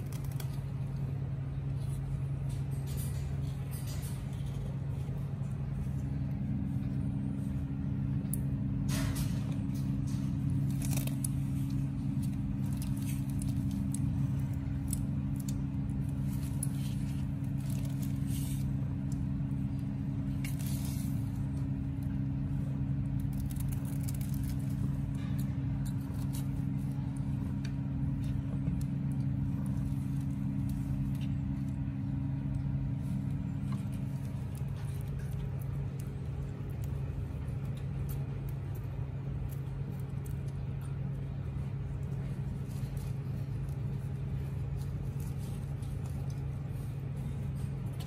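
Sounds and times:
scratchy rustles: 0:08.9 - 0:19.4.

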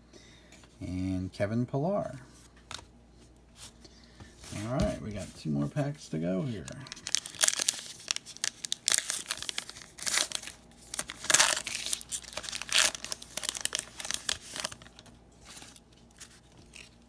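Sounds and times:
wrapper tearing and crinkling: 0:06.6 - 0:17.0.

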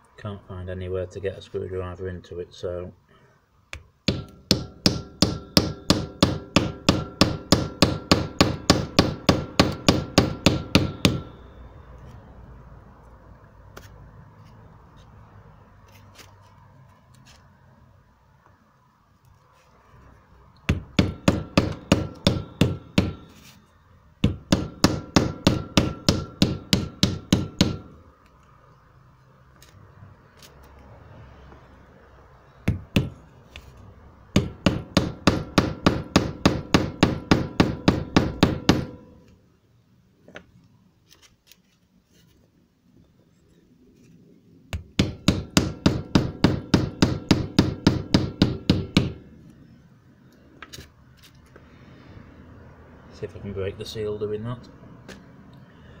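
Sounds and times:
hammer blows on wooden block: 0:04.1 - 0:11.4, 0:20.7 - 0:23.4.

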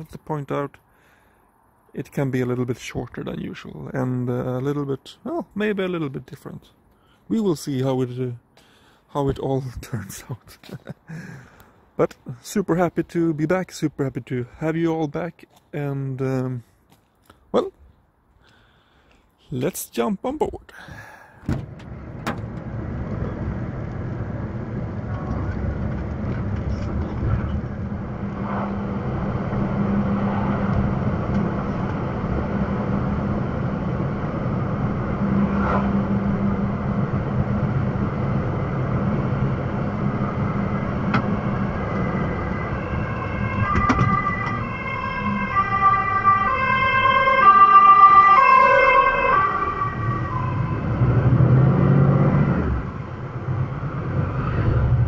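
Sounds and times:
truck engine drone: 0:20.8 - 0:55.0
ambulance siren: 0:40.1 - 0:52.2.

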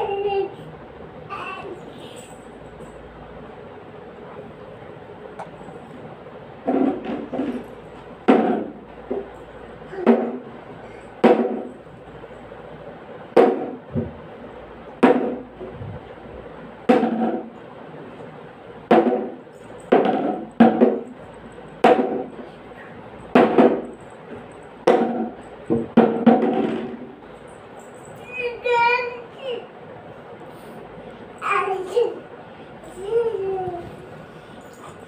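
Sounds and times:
plastic bat knocking on tile floor: 0:08.3 - 0:09.3, 0:11.2 - 0:11.7, 0:13.4 - 0:14.1, 0:15.0 - 0:15.4, 0:16.9 - 0:17.5, 0:18.9 - 0:21.1, 0:21.8 - 0:22.3, 0:23.4 - 0:23.9, 0:24.9 - 0:27.1.

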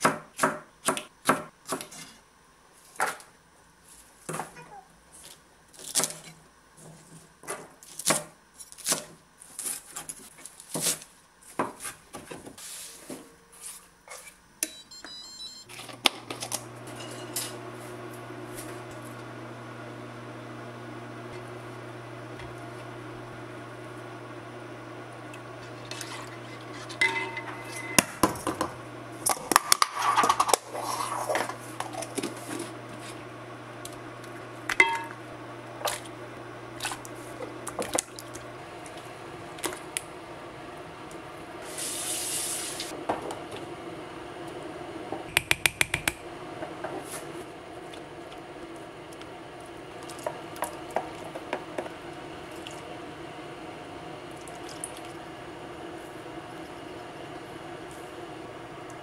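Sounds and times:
dishes and utensils clinking: 0:16.9 - 0:17.6, 0:25.7 - 0:28.6, 0:34.7 - 0:35.2
tap water running: 0:31.3 - 0:40.1, 0:54.3 - 0:55.2.

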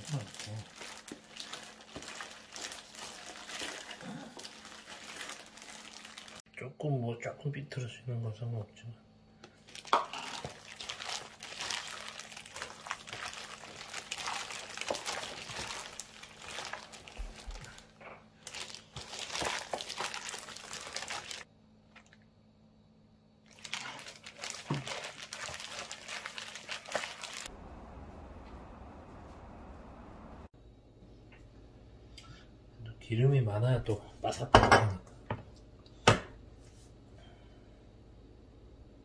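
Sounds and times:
plastic glove crinkling: 0:00.0 - 0:06.4, 0:09.6 - 0:22.1, 0:23.5 - 0:27.5
wet batter squishing: 0:00.0 - 0:06.4, 0:09.6 - 0:22.2, 0:23.5 - 0:27.5
steady low hum: 0:27.5 - 0:34.4.

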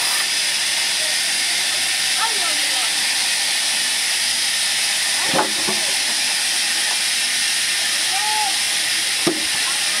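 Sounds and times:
band saw running: 0:00.0 - 0:10.0.

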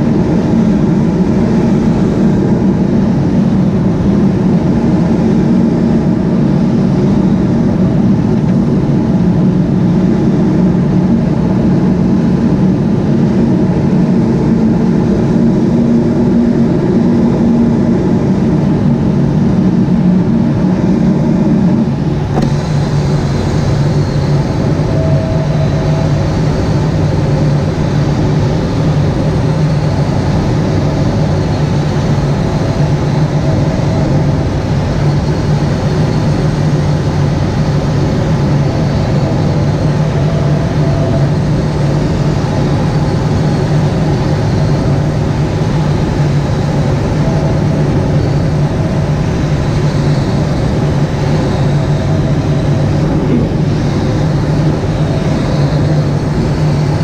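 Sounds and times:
aircraft engine drone: 0:00.0 - 0:57.0
rush of air: 0:13.7 - 0:57.0.

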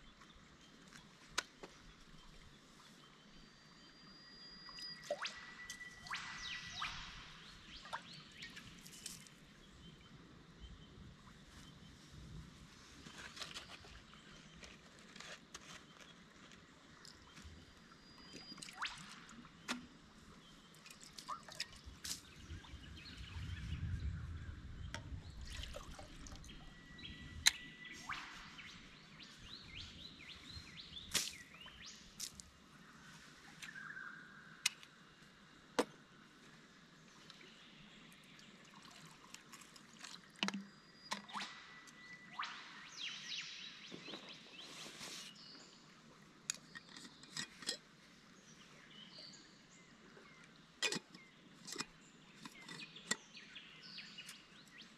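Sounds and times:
water pouring and trickling: 0:20.8 - 0:22.4, 0:25.0 - 0:26.7, 0:38.4 - 0:41.5.

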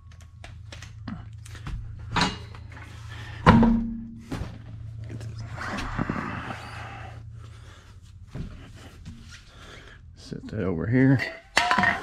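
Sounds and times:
steady low hum: 0:00.0 - 0:12.0
wheel thunk with metallic ring: 0:03.4 - 0:04.3, 0:11.1 - 0:12.0
wheel knocks and scrapes: 0:10.5 - 0:12.0.

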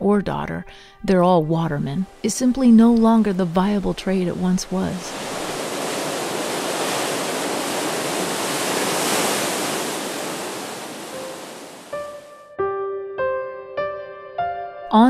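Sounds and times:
surf breaking on rocks: 0:02.9 - 0:12.0.

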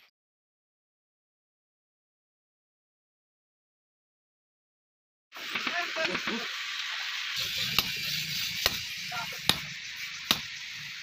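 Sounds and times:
steady hiss: 0:05.4 - 0:11.0
hammer striking chisel on steel: 0:07.6 - 0:08.0, 0:08.6 - 0:09.7, 0:10.3 - 0:10.5.

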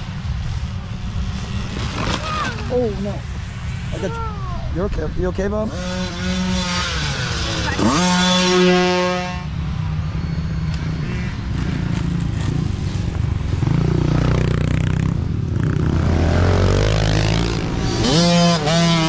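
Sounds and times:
dirt bike engine revving: 0:05.4 - 0:09.6, 0:10.2 - 0:19.0.

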